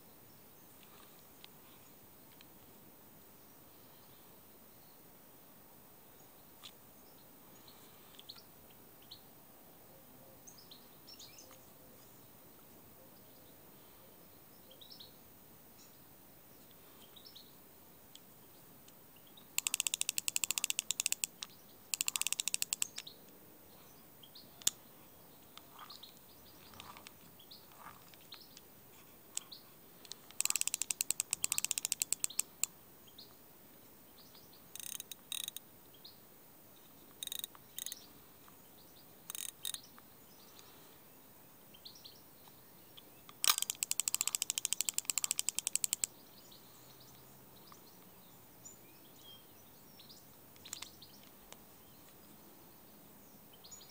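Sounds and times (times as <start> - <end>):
birds chirping: 9.9 - 53.9
fishing reel ratchet clicking: 19.6 - 21.3, 21.9 - 23.0, 30.4 - 32.5, 34.8 - 35.6, 37.2 - 38.0, 39.3 - 39.8, 43.4 - 46.1.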